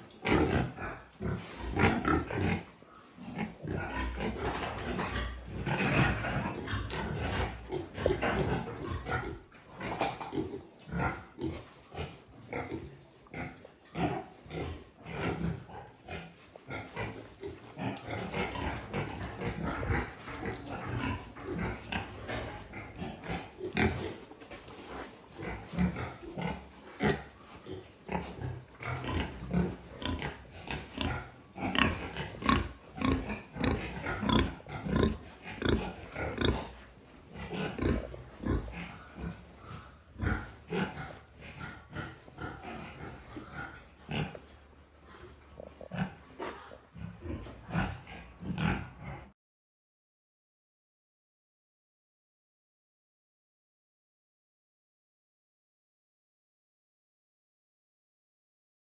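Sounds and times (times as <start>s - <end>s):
young pigs grunting: 0.0s - 49.3s.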